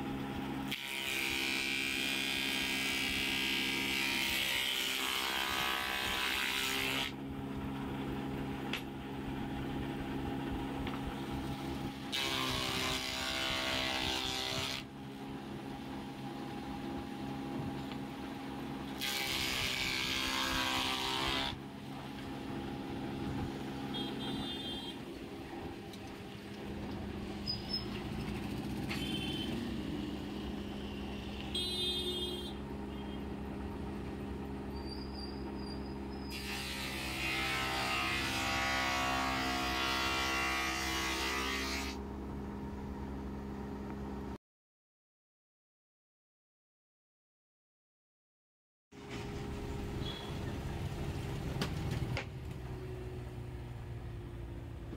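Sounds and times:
spindle moulder motor hum: 0.0 - 44.4
cutter rushing through wood: 18.9 - 21.6.

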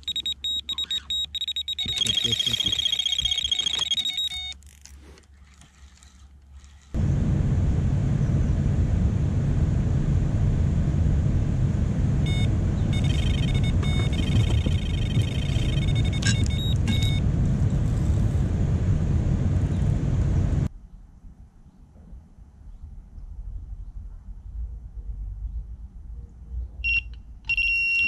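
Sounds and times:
electronic bite alarm beeping: 0.0 - 4.6, 12.3 - 17.2, 26.8 - 28.0.

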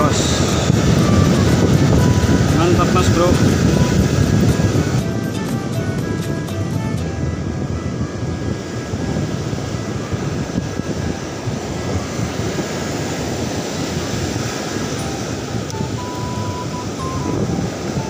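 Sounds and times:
breaking surf: 0.0 - 18.0
wind buffeting microphone: 0.0 - 18.0.

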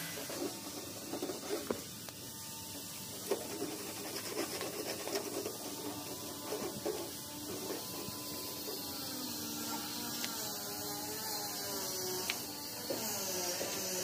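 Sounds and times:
scraping and rubbing: 0.0 - 2.0, 3.1 - 10.4.

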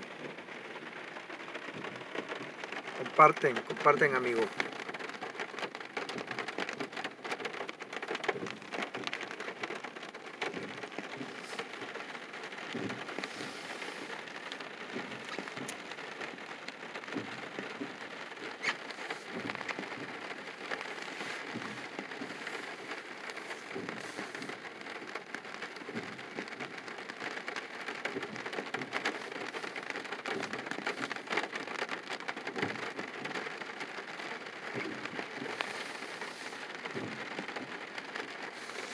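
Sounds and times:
rain falling on a car: 0.0 - 38.9.

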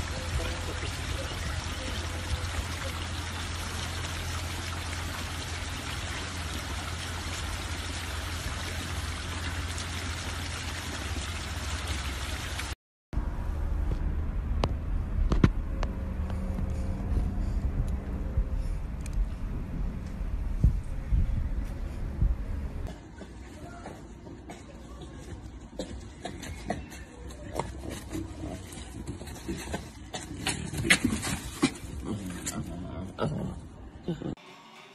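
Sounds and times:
running water rushing: 0.0 - 12.8.

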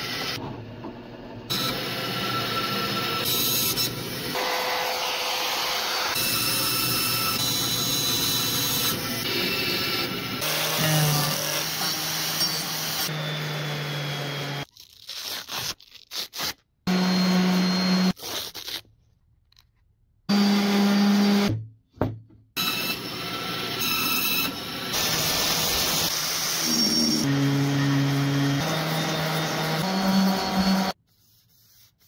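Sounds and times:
angle grinder grinding wood: 22.6 - 31.0
palm sander running: 24.5 - 31.0.

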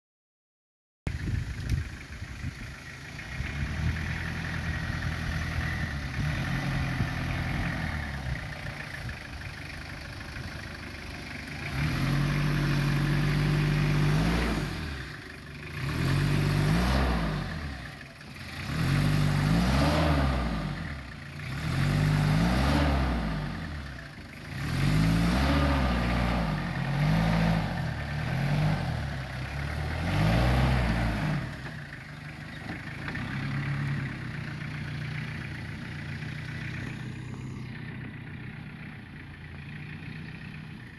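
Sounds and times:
truck engine revving: 1.6 - 40.9.

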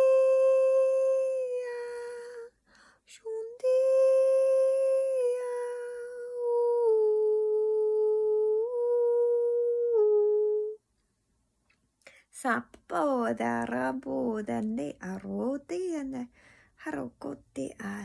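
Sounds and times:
woman humming sustained tones: 3.2 - 10.8.

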